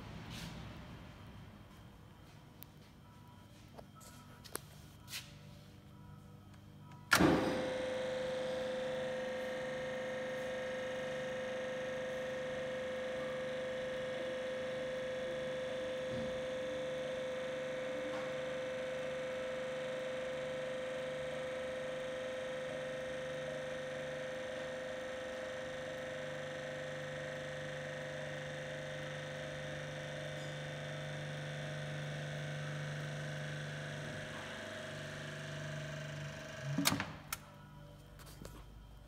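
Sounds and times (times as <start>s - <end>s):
mixer motor hum and whine: 0.0s - 39.0s.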